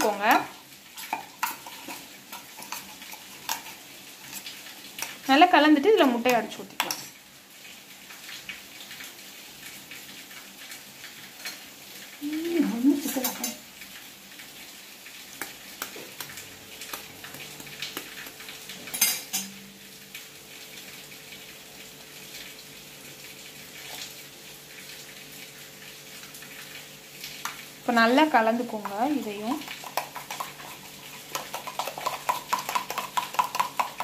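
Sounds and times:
egg tapping on rim: 29.6s - 34.0s.

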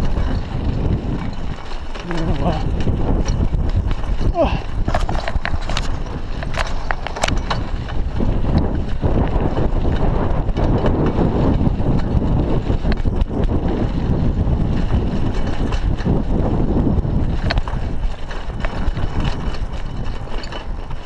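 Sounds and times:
bike rattling clicks: 0.0s - 21.0s
tyres rumbling on gravel: 0.0s - 21.0s
wind buffeting microphone: 0.0s - 21.0s.

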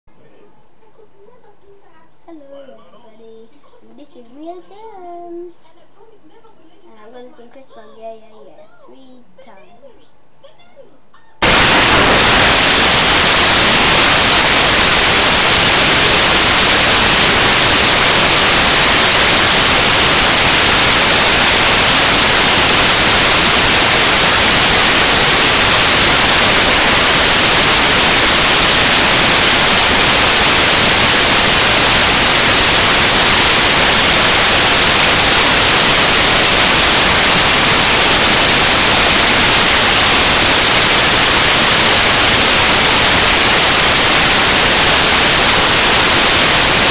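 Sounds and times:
loud static hiss: 11.4s - 46.9s.

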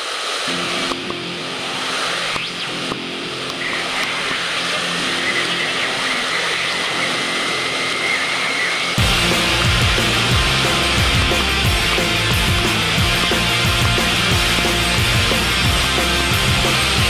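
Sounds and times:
loud rock music: 0.5s - 17.0s
white-water rapids rushing: 3.6s - 17.0s.

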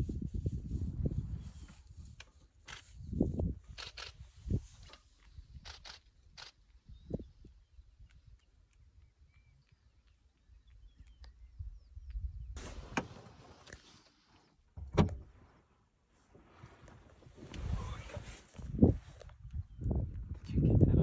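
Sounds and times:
rustling: 15.2s - 19.4s.

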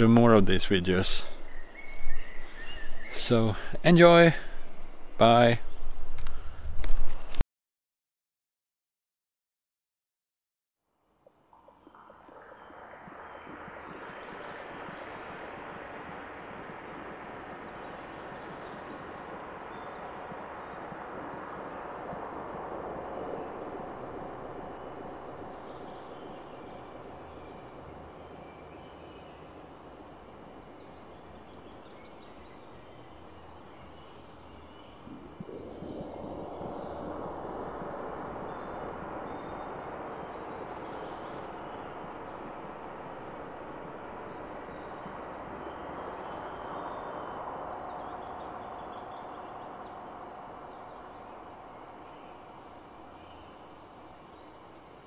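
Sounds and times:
faint gliding high tones: 11.2s - 55.0s
low throbbing hum: 11.5s - 54.3s
wind-like synthesized drone: 11.9s - 54.1s.

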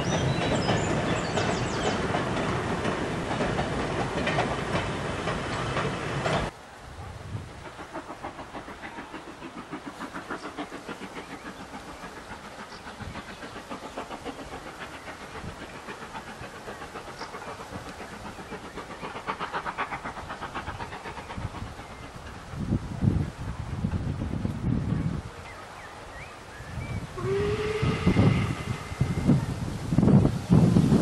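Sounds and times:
steam locomotive chuffing: 0.0s - 6.6s, 7.2s - 31.0s.

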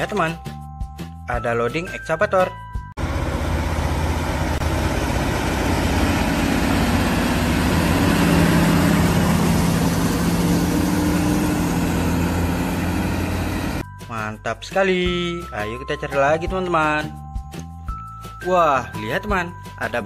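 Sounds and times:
heavy diesel engine running: 3.0s - 13.8s.

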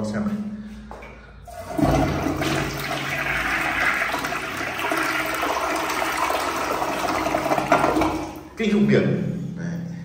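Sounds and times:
toilet flushing: 1.5s - 8.6s.

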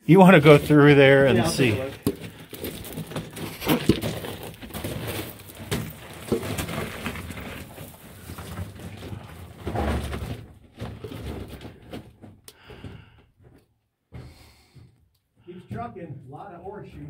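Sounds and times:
crawling on crunching gravel: 0.2s - 9.9s
stones shifting clicks: 1.5s - 9.6s.

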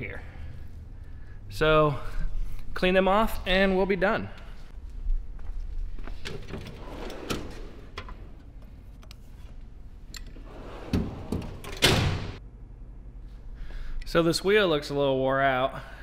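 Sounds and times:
drawer sliding shut: 6.3s - 8.4s, 10.4s - 12.4s.

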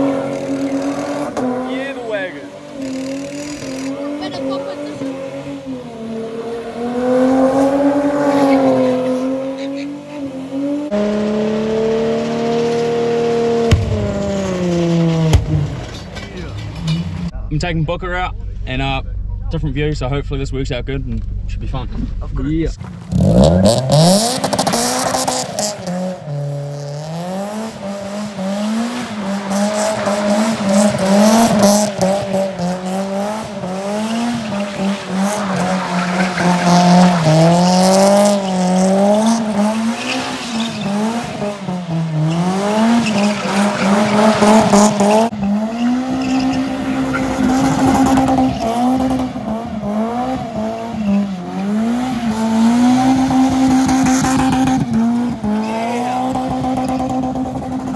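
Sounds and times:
car engine revving high: 0.0s - 15.9s, 23.0s - 57.9s
tyres squealing: 29.1s - 49.3s.

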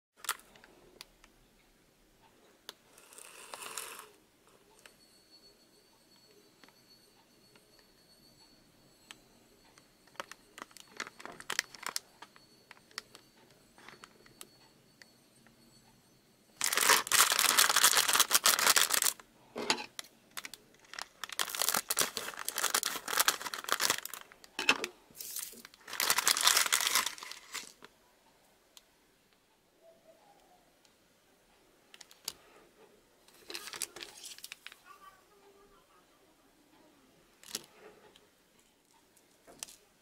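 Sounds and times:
plastic bag crinkling: 10.1s - 12.3s, 16.6s - 19.2s, 20.0s - 27.8s, 33.3s - 34.9s
plastic wrapper ripping: 10.6s - 12.0s, 16.6s - 19.2s, 20.4s - 24.2s, 25.2s - 27.8s, 33.4s - 34.8s.

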